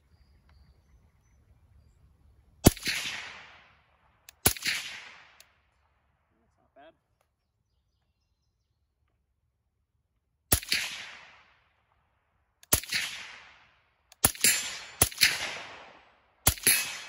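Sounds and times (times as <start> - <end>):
suppressed rifle shots with echo: 2.6 - 6.1, 10.5 - 11.9, 12.6 - 17.0.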